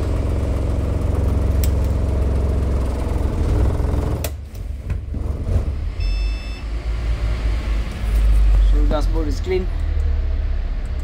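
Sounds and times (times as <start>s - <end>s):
diesel bus engine idling: 0.0s - 5.1s
short electronic beep: 6.0s - 6.7s.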